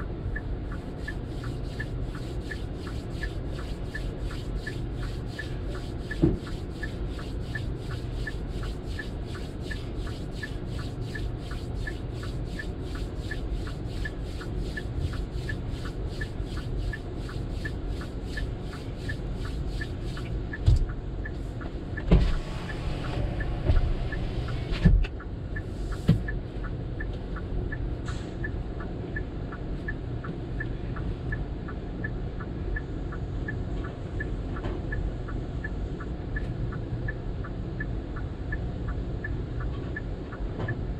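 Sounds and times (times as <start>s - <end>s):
car wash rumble: 0.0s - 20.6s, 21.4s - 24.9s
faint regular ticking: 0.0s - 21.4s.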